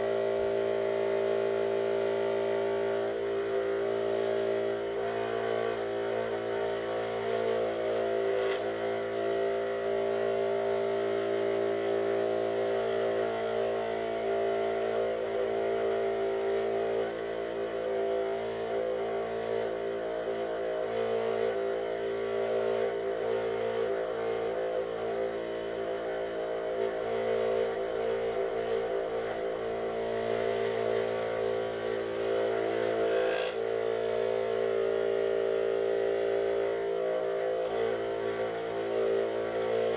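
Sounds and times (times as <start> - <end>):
scroll saw cutting plywood: 30.3 - 34.5.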